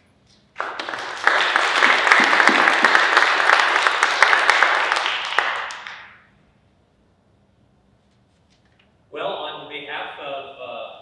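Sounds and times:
audience applauding: 0:00.6 - 0:06.2.

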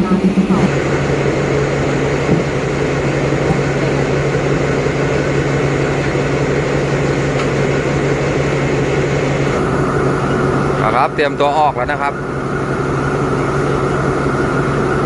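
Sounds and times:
diesel locomotive idling: 0:00.0 - 0:15.0.

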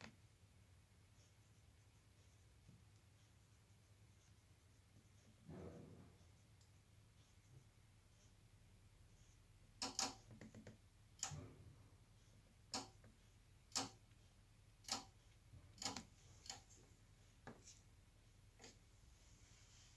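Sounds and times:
sharp clicks: 0:09.8 - 0:10.2.

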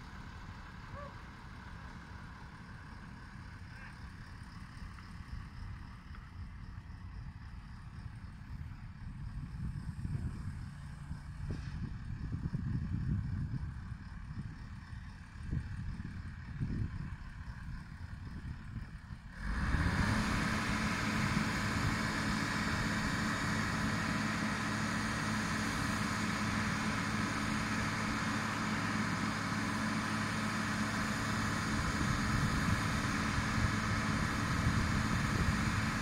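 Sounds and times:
pile-driving rig engine drone: 0:19.2 - 0:36.0
steady whine: 0:19.2 - 0:36.0.

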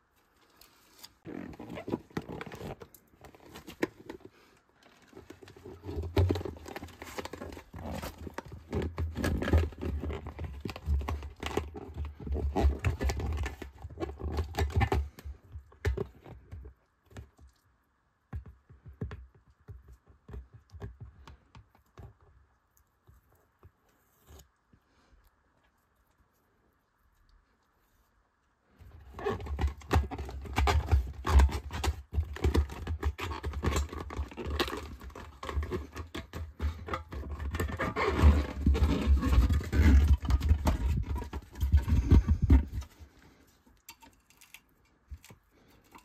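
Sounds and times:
rubber bladder crumpling and rubbing: 0:00.0 - 0:17.6, 0:25.6 - 0:43.8.

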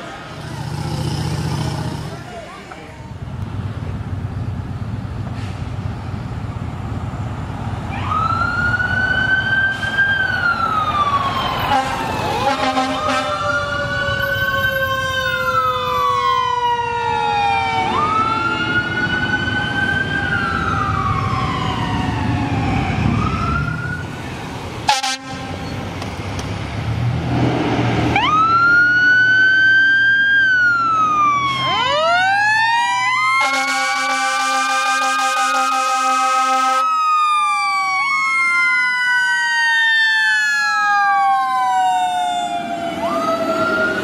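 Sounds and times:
truck engine rumble: 0:00.0 - 0:44.0
fire engine siren wailing: 0:07.7 - 0:25.8, 0:28.1 - 0:44.0
horn blast: 0:11.7 - 0:13.4, 0:24.9 - 0:25.7, 0:33.4 - 0:36.8.

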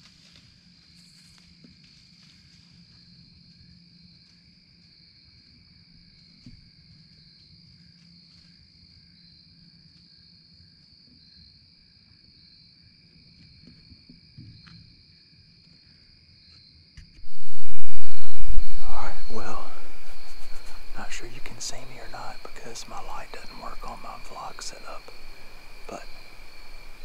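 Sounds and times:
microphone handling rumble: 0:17.2 - 0:27.0
high-pitched drone: 0:17.3 - 0:27.0.

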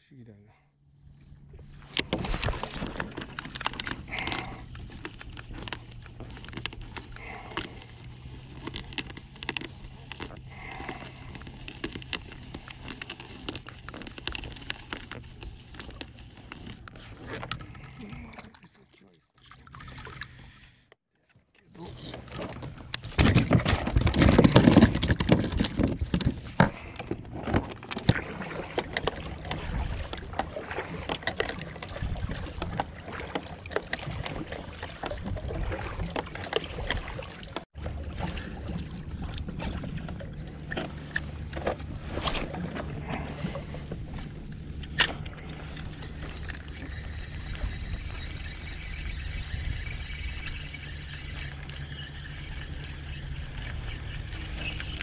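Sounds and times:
steady low rumble: 0:00.8 - 0:18.9
fish clattering on kayak: 0:01.6 - 0:18.6, 0:22.0 - 0:55.0.

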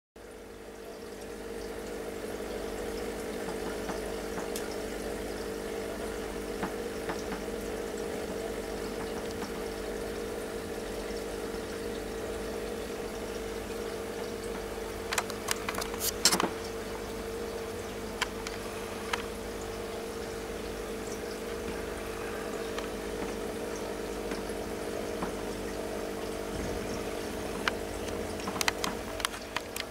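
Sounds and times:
aquarium filter humming: 0:00.2 - 0:29.9
running water: 0:00.2 - 0:29.9
sharp clicks: 0:27.6 - 0:29.9.

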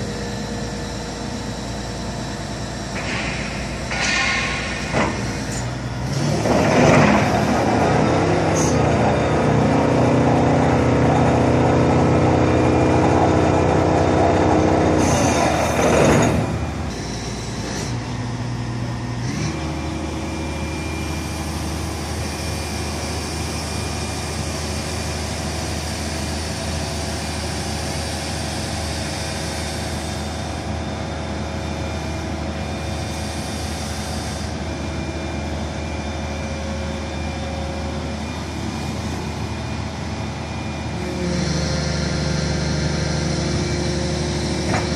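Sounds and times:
excavator diesel engine running: 0:00.0 - 0:44.9.

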